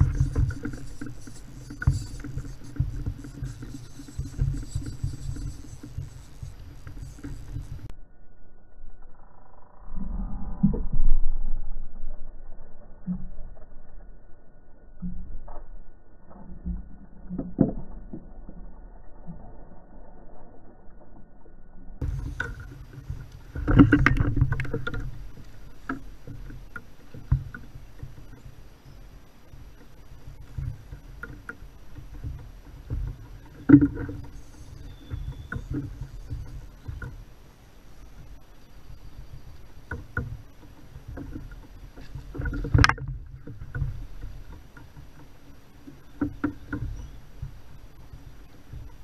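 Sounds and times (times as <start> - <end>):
gear knocking against kayak: 0.0 - 7.9, 22.0 - 28.6, 29.6 - 37.4, 38.1 - 49.0
water splashing: 0.0 - 7.9.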